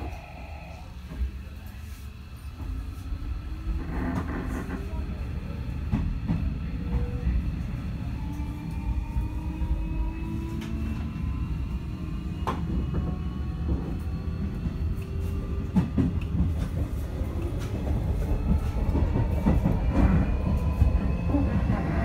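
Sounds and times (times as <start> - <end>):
train wheels rumbling on track: 0.0 - 22.0.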